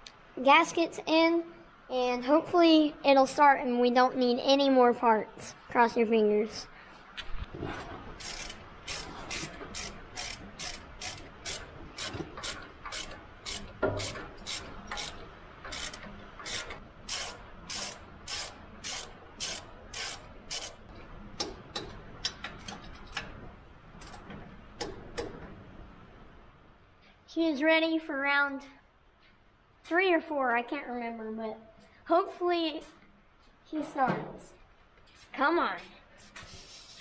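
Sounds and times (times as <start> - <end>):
ratchet wrench clicking: 8.2 - 20.8.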